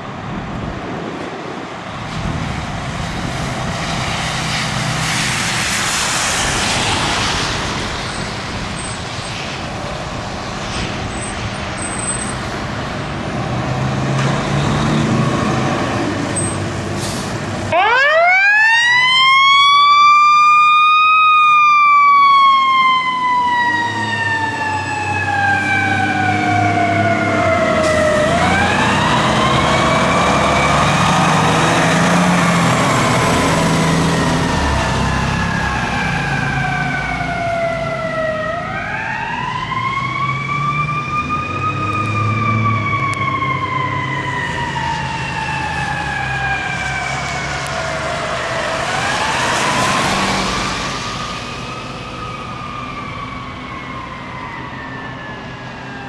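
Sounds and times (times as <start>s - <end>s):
fire engine rumble: 0.0s - 56.0s
mechanical siren wailing: 17.7s - 50.1s, 51.1s - 56.0s.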